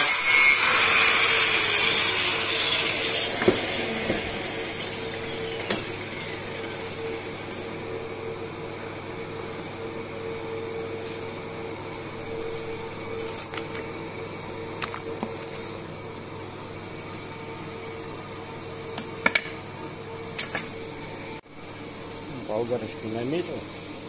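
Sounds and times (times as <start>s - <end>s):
steady machine hum: 1.3s - 24.0s
metal tools clinking: 13.2s - 13.9s, 14.8s - 15.7s.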